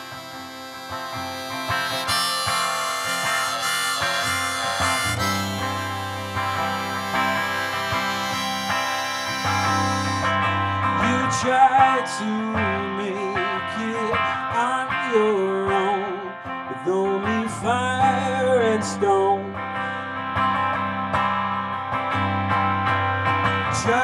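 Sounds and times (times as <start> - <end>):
electric guitar strumming: 0.0 - 24.0
man singing: 10.9 - 19.6, 23.7 - 24.0.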